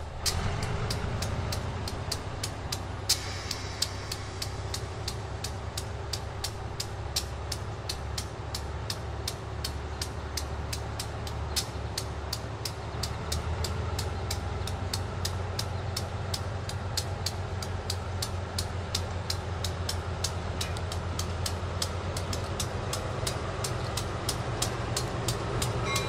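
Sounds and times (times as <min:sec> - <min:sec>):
diesel locomotive engine rumble: 0:00.0 - 0:26.0
locomotive bell ringing: 0:25.6 - 0:26.0.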